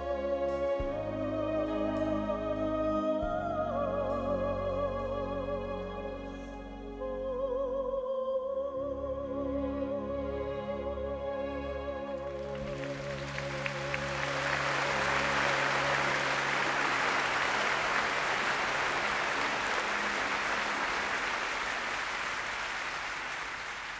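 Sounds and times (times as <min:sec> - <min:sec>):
sustained accompanying chord: 0:09.0 - 0:22.9
audience applauding: 0:12.3 - 0:23.9.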